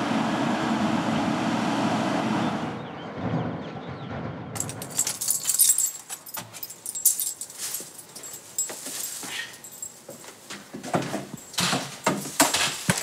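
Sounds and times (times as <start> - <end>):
keys jangling: 4.6 - 13.0.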